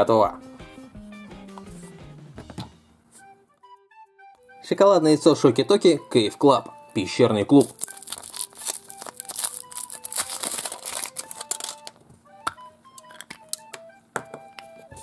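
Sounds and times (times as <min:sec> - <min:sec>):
soft background music: 0:00.0 - 0:15.0
foil wrapper crinkling and tearing: 0:07.5 - 0:12.0.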